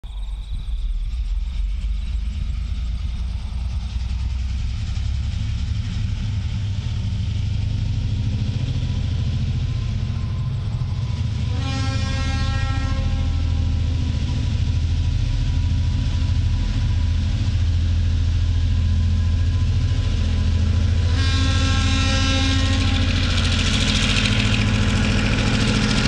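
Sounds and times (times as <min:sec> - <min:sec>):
diesel locomotive engine rumble: 0:00.0 - 0:26.0
locomotive horn: 0:10.2 - 0:14.3, 0:20.8 - 0:24.8.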